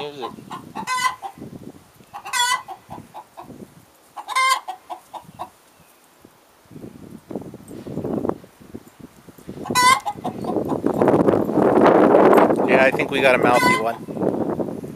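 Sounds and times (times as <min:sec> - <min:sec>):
hen squawking: 0:00.0 - 0:01.4, 0:02.1 - 0:03.4, 0:04.2 - 0:05.5, 0:09.6 - 0:10.8, 0:13.3 - 0:14.1
hen clucking: 0:00.0 - 0:03.6, 0:04.2 - 0:05.6, 0:09.6 - 0:10.9, 0:13.2 - 0:14.1.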